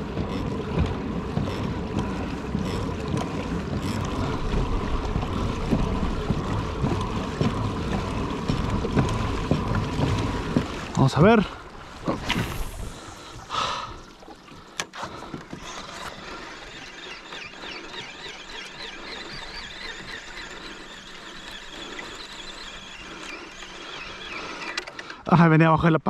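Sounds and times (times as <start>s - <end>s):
fishing reel gears squeaking: 15.6s - 25.2s.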